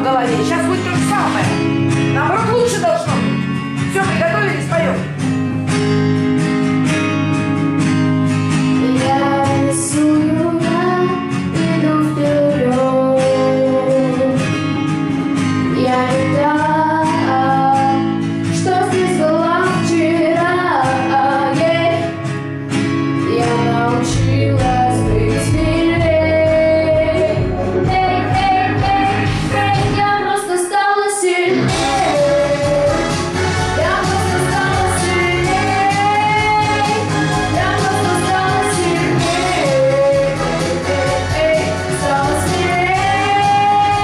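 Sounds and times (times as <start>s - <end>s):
guitar accompaniment: 0.0s - 44.0s
girl singing into a microphone: 8.7s - 22.3s, 23.2s - 33.0s, 33.8s - 44.0s
bass part: 24.0s - 30.2s, 31.7s - 44.0s.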